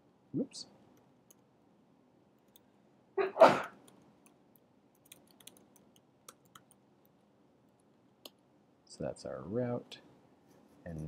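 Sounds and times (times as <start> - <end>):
sneeze-like burst of breath: 3.2 - 3.8.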